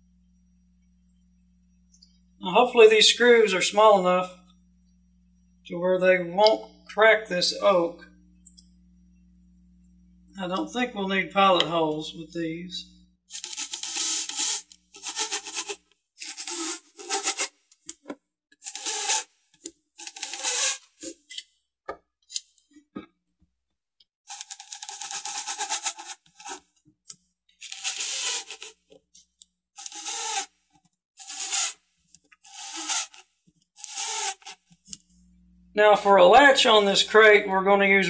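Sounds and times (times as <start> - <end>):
impact driver driving screws: 32.5 - 33.2, 33.8 - 34.6.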